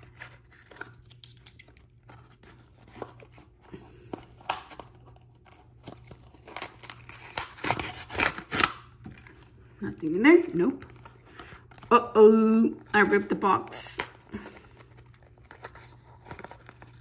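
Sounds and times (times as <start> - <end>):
cardboard scraping and tearing: 5.1 - 8.8
cardboard crackles: 12.8 - 17.0.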